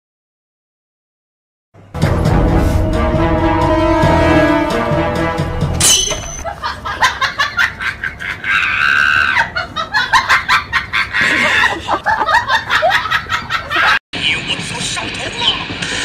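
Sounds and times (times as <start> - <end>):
laughter-like bursts: 6.4 - 15.5.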